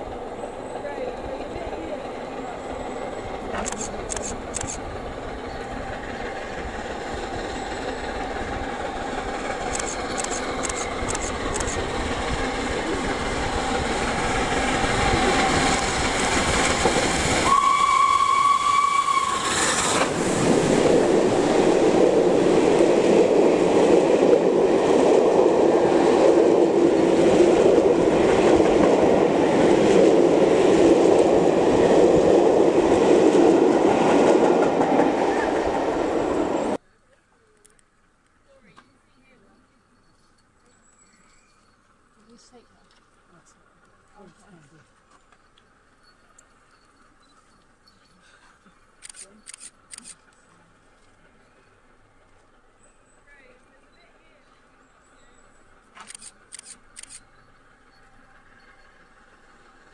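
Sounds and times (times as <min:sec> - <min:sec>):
steam locomotive working hard: 0:00.0 - 0:36.8, 0:48.9 - 0:59.9
train coaches rolling past: 0:00.0 - 0:36.8, 0:37.4 - 0:59.9
steam whistle blast: 0:17.4 - 0:20.0.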